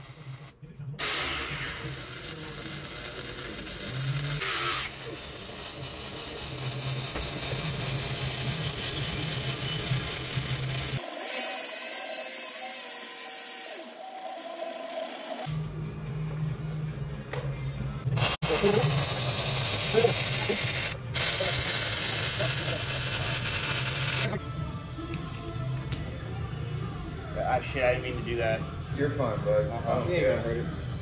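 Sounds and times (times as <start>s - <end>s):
welding arc crackling: 0.0s - 13.4s, 18.2s - 24.3s.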